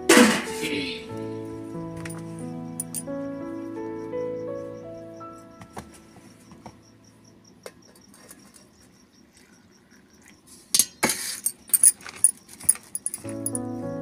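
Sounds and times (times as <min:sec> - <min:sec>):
background music: 0:00.0 - 0:07.3, 0:13.1 - 0:14.0.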